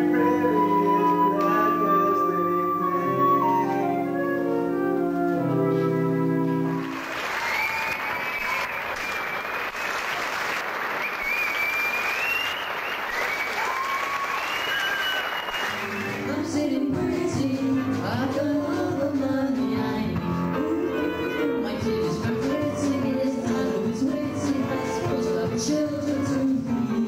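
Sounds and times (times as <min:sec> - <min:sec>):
music with singing: 0:00.0 - 0:06.8, 0:15.8 - 0:27.0
audience applauding: 0:06.7 - 0:16.3.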